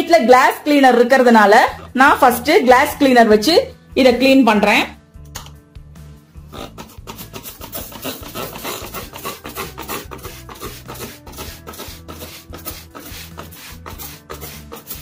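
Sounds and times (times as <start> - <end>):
spray bottle hisses: 6.8 - 15.0.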